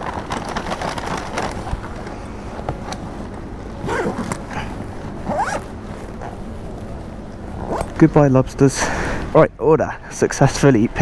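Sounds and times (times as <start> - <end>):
paper bags crackling: 0.0 - 2.3
zipper on bag pulled shut: 3.8 - 4.5, 5.2 - 6.4, 7.6 - 8.0.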